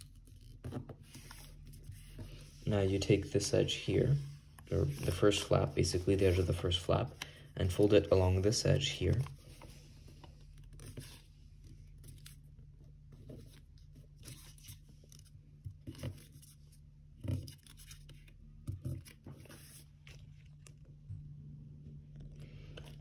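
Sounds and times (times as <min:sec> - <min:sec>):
paper being folded by hand: 0:17.2 - 0:21.2.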